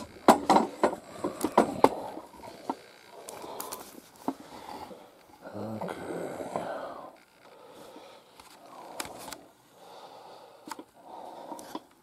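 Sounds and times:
person breathing close to microphone: 0.0s - 12.0s.

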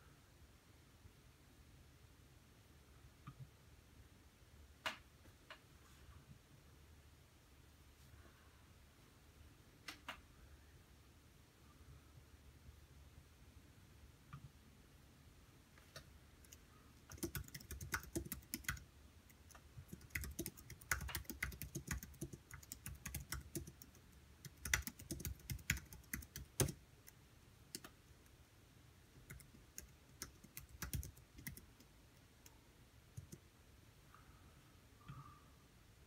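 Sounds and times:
keyboard typing clicks: 15.9s - 18.8s, 19.4s - 26.8s, 29.3s - 31.8s.

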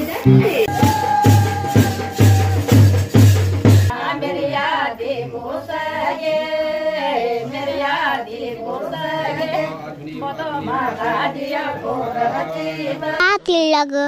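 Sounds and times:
music: 0.0s - 3.9s
drum beaten with sticks: 0.3s - 3.9s
women singing folk song: 3.9s - 13.2s.

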